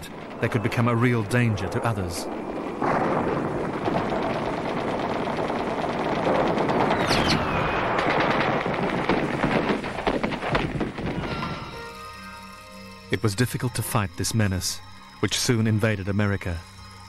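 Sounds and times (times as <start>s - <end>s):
rapid automatic gunfire: 2.3s - 11.1s.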